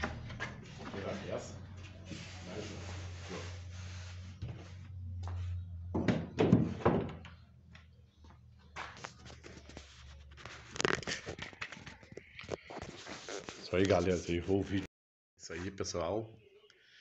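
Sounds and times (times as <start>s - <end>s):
heavy wooden thunks: 5.9s - 7.3s.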